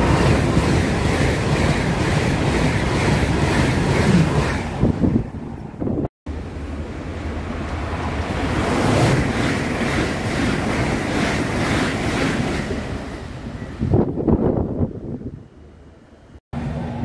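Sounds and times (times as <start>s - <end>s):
train passing at speed: 0.0s - 17.0s.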